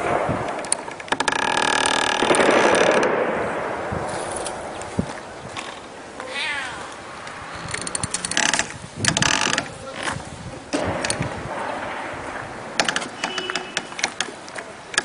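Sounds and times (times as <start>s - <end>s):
rapid rattling clicking: 0.5s - 3.2s
cat meowing: 6.2s - 7.0s
cat yowling: 6.2s - 7.0s.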